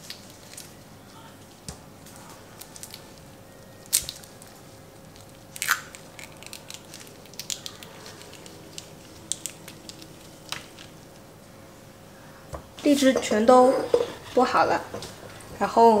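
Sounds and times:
fruit rinds cracking: 2.1s - 11.0s.

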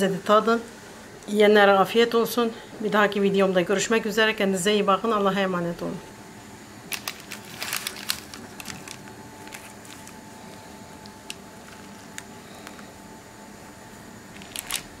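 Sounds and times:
bread crust and paper crackling: 6.9s - 13.0s, 14.3s - 15.0s.

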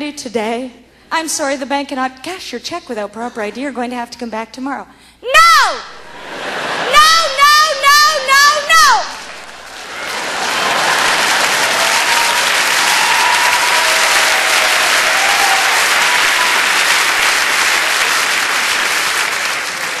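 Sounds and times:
audience applauding: 9.1s - 20.0s.

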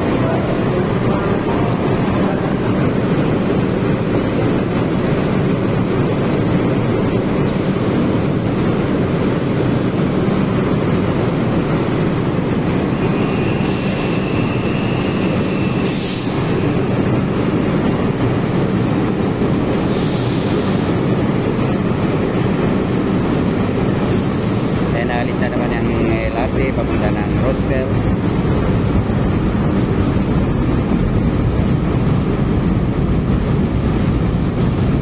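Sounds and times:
train rumbling into station: 0.0s - 35.0s
high wheel squeal: 13.0s - 16.6s.

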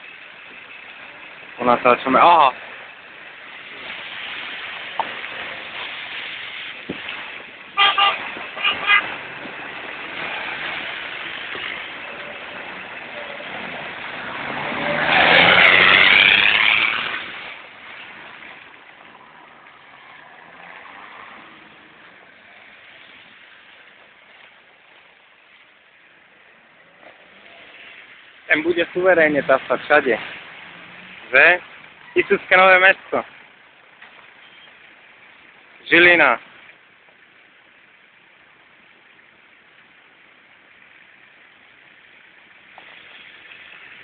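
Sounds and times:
vehicle horn toots: 7.8s - 9.2s
off-road vehicle driving past: 8.8s - 17.6s.

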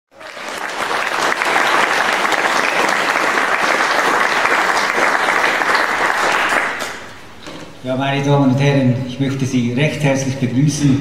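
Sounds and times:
audience applauding: 0.1s - 7.4s.

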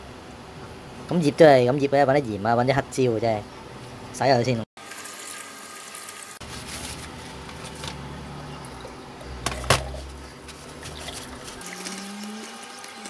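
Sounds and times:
tap water running into sink: 10.8s - 13.0s.

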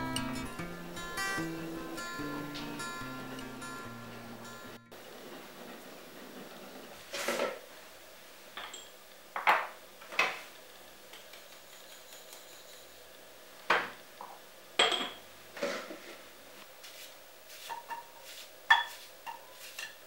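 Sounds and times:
dishes and utensils clinking: 8.6s - 10.5s, 11.1s - 16.1s, 17.7s - 20.0s.

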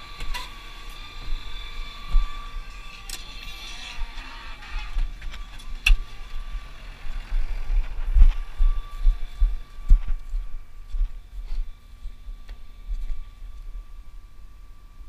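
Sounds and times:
wind rumble on microphone: 5.8s - 13.9s.

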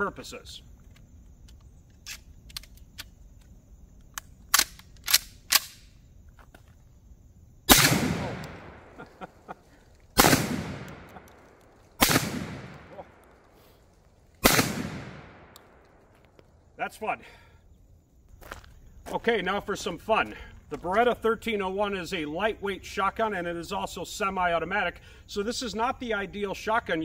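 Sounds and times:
shotgun shots with echo: 7.7s - 9.0s, 10.2s - 11.3s, 12.0s - 13.1s, 14.4s - 15.6s.

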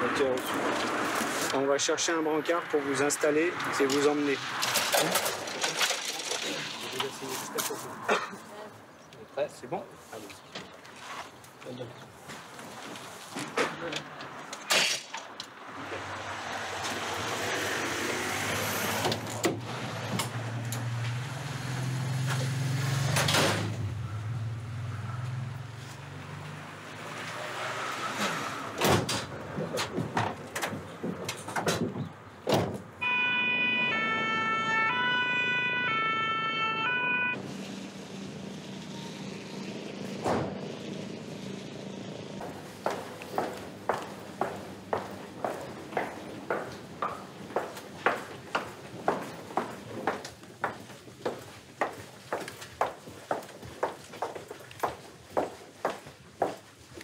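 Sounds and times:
two-tone siren: 33.0s - 37.4s
engine rumble: 37.3s - 51.4s.

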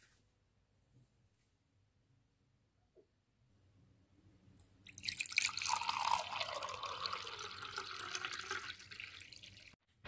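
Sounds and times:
water pouring into a mug: 4.9s - 9.8s.

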